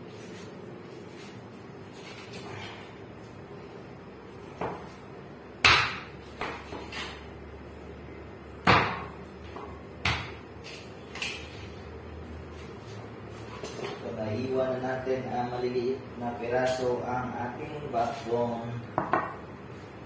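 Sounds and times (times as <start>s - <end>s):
knife chopping through bone: 5.6s - 7.2s.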